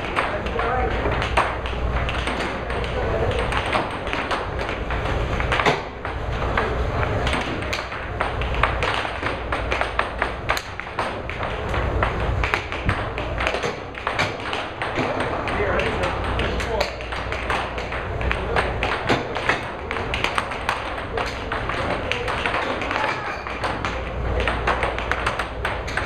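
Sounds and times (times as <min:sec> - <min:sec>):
air hockey puck clacking: 0:00.0 - 0:26.0
low hum from table: 0:00.0 - 0:26.0.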